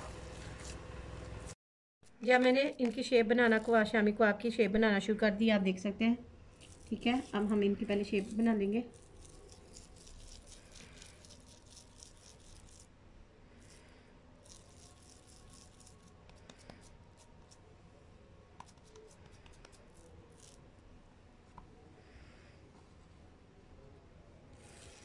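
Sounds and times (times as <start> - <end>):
hands squeezing moist mixture: 6.5 - 12.9, 13.5 - 17.6, 18.6 - 20.6.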